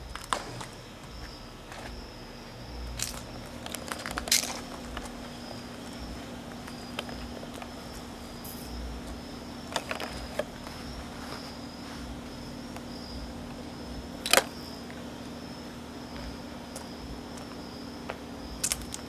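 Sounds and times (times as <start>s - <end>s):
footsteps clicks and scuffs: 0.0s - 2.2s, 16.1s - 19.0s
insects chirring: 0.0s - 19.0s
low steady hum: 0.0s - 19.0s.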